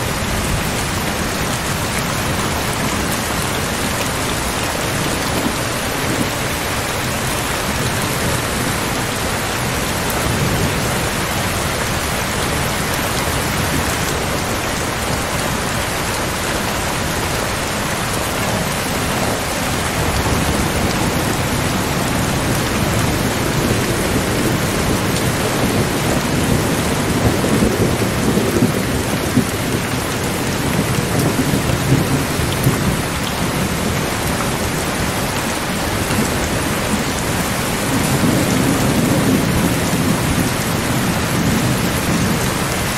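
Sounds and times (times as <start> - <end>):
steady rain: 0.0 - 42.9
rolling thunder: 35.9 - 42.9.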